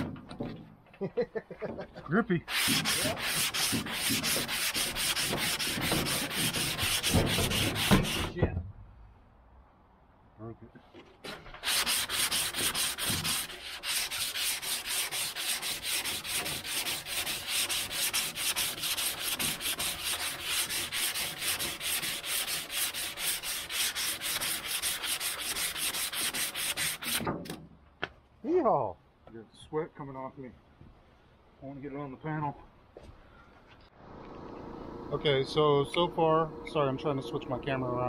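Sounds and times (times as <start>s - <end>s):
sandpaper scraping on filler: 2.5s - 8.3s, 11.6s - 27.2s.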